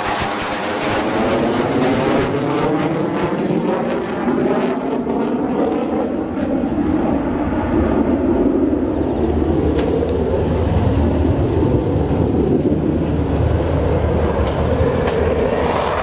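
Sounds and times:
jet engines passing overhead: 0.0s - 16.0s.

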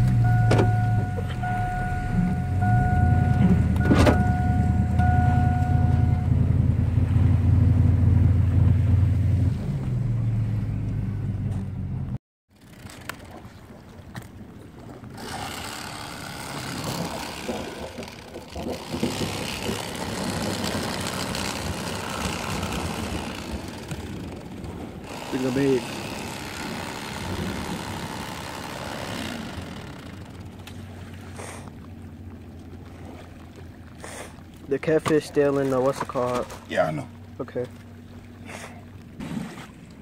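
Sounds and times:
truck engine hum: 0.0s - 14.1s, 15.0s - 40.0s
electronic chime beeping: 0.2s - 6.5s.

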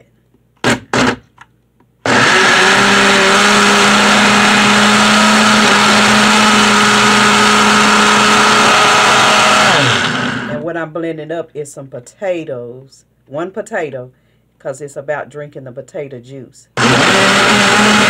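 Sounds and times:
blender motor running: 0.6s - 1.2s, 2.0s - 10.6s, 16.8s - 18.0s.

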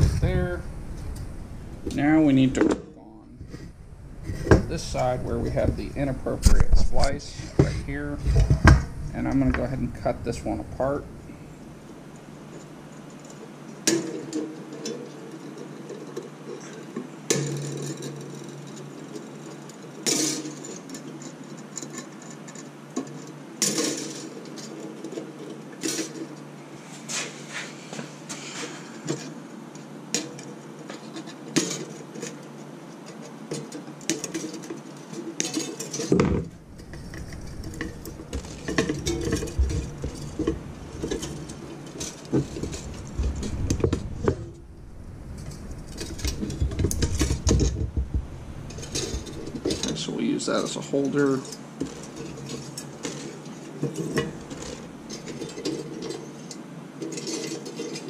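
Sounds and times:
frame bumping and rubbing: 0.0s - 58.0s
pliers clinking on metal frame: 30.2s - 36.3s.

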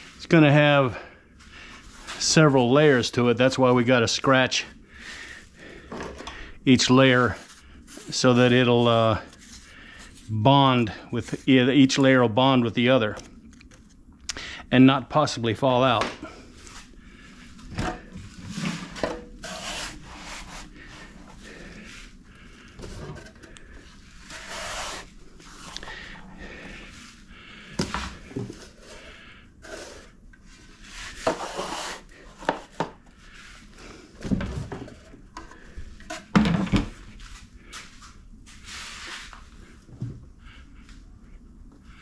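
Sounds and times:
scoop scraping sand in bucket: 18.6s - 20.7s, 24.3s - 25.7s.

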